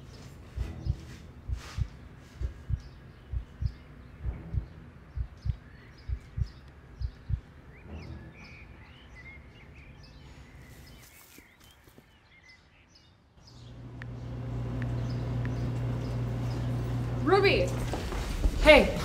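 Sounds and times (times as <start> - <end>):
low steady hum: 0.0 - 7.7, 13.4 - 17.9
small birds chirping: 0.0 - 17.6.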